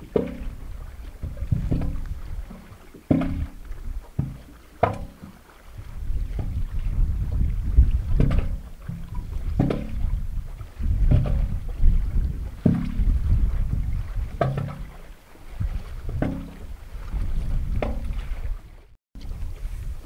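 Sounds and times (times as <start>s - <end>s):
low rumble of water: 0.0s - 20.0s
waves slapping against concrete: 0.0s - 20.0s.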